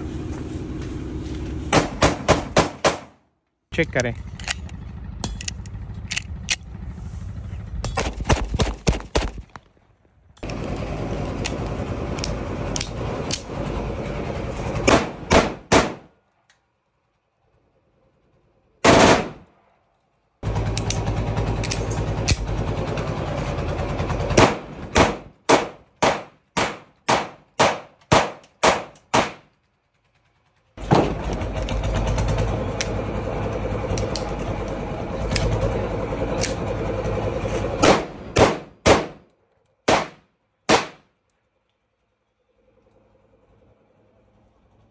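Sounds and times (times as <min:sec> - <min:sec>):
pistol shots: 0:01.7 - 0:03.2, 0:14.9 - 0:16.1, 0:18.8 - 0:19.4, 0:24.4 - 0:29.5, 0:37.8 - 0:41.1.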